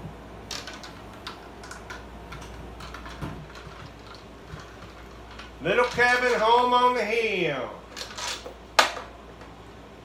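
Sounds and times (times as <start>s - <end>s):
instruments and chair knocking: 0.0s - 6.7s.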